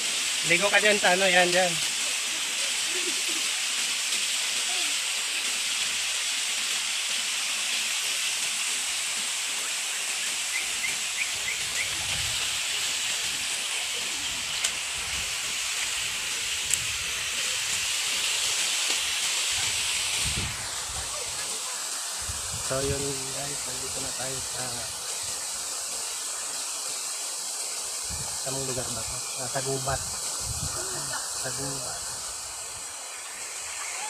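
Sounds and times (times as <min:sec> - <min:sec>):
waterfall rushing into pool: 0:00.0 - 0:34.0.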